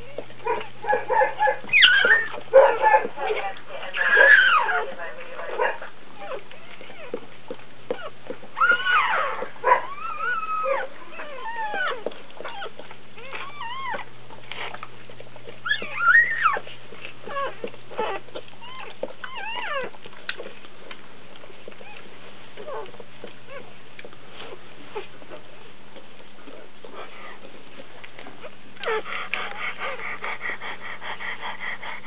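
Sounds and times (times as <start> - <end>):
puppy crying in squeaks: 1.7 - 2.4, 4.1 - 4.7, 8.0 - 14.0, 15.6 - 16.6, 17.3 - 19.9.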